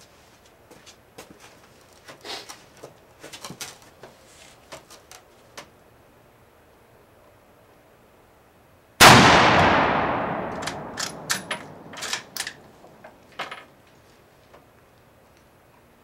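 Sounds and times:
rifle shot with echo: 0:09.0 - 0:12.7
rifle bolt metallic clacks: 0:10.2 - 0:13.6.

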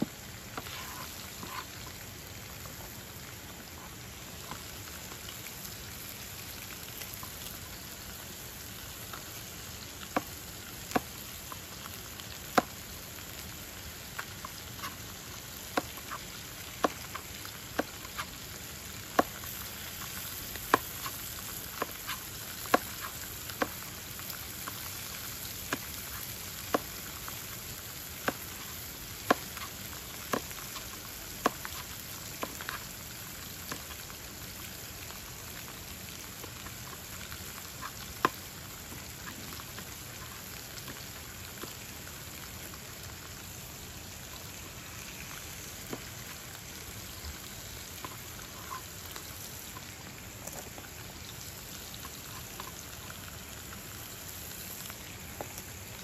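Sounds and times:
meat sizzling in a frying pan: 0:00.0 - 0:56.0.

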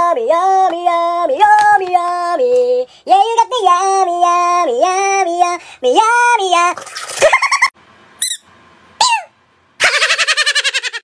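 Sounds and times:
high-pitched wordless singing: 0:00.0 - 0:06.8.

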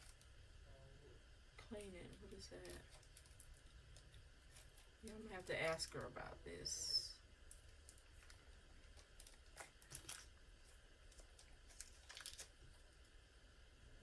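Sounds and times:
plastic bag crinkling: 0:01.8 - 0:06.1, 0:07.4 - 0:13.1.

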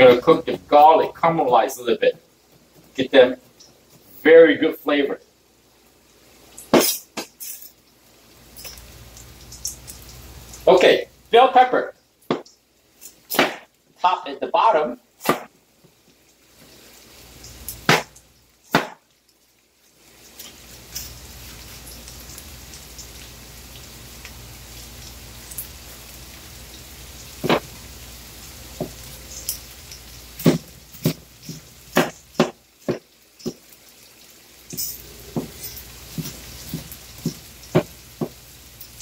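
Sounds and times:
onion sizzling in oil: 0:00.0 - 0:39.0
cleaver chopping on wooden board: 0:13.3 - 0:13.6, 0:17.9 - 0:18.1, 0:18.7 - 0:19.0, 0:30.5 - 0:31.2, 0:32.0 - 0:33.6.

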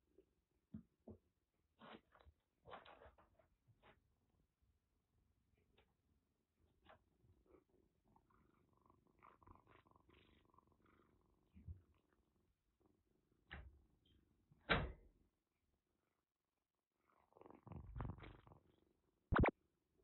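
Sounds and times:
kitten purring: 0:07.0 - 0:13.4, 0:17.0 - 0:19.5.

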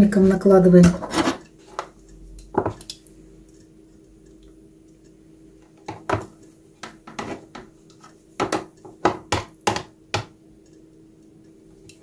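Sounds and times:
tongs knocking on plastic container: 0:08.4 - 0:10.4.

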